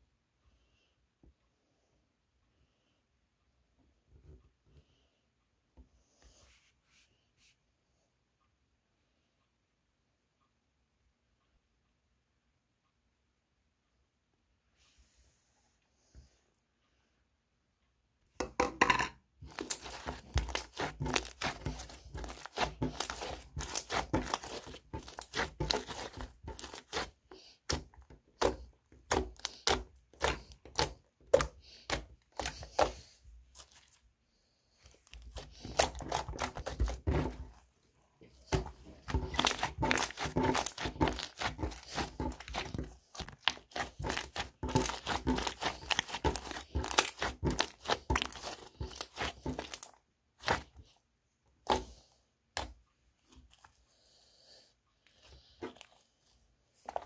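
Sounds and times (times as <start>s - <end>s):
slime squished by hand: 19.4s - 34.0s, 34.8s - 37.6s, 38.4s - 50.9s.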